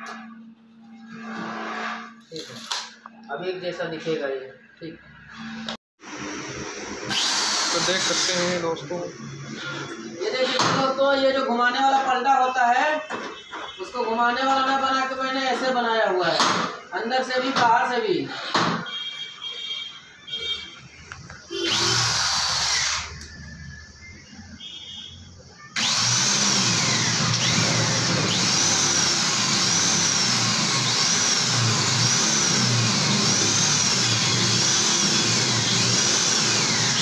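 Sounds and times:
high whine of drill bit: 5.4s - 9.2s, 21.5s - 23.8s, 25.8s - 37.0s
electric drill boring through metal: 6.0s - 8.8s, 21.7s - 23.4s, 25.8s - 37.0s.

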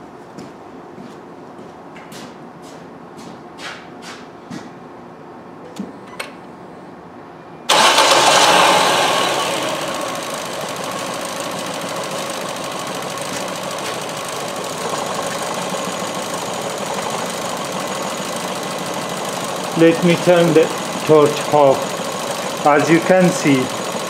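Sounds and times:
car engine starting and rough idling: 7.7s - 24.0s.

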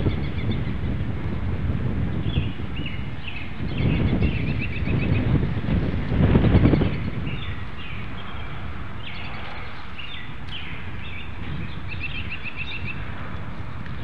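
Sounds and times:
birds chirping and calling: 0.0s - 1.0s, 2.2s - 14.0s
steady low rumble: 0.0s - 14.0s
bird trill: 2.2s - 5.3s, 6.6s - 13.0s.

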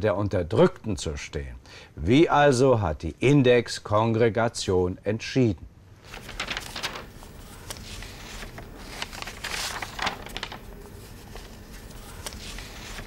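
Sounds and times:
book pages turning: 6.0s - 13.0s.

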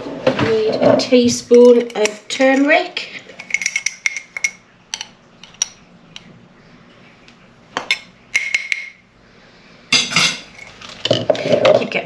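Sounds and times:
teaspoon clinking against glass jar: 3.4s - 5.8s.

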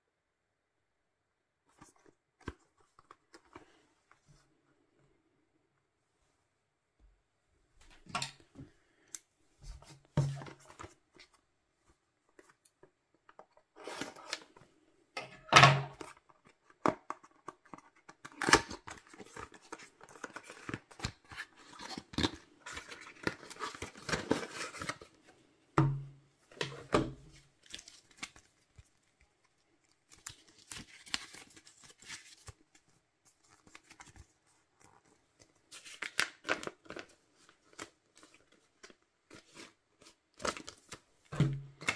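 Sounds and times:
paper rustling: 27.2s - 41.9s.

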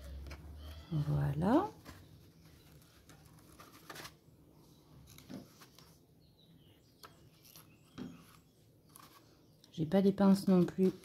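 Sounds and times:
paper rustling: 0.0s - 6.0s, 7.0s - 9.4s.

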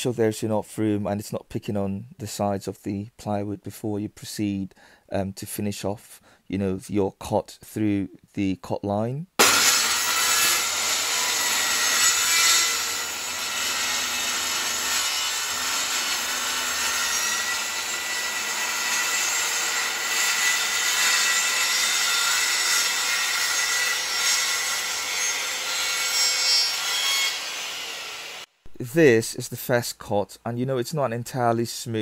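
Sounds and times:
circular saw cutting plywood: 9.4s - 28.5s.

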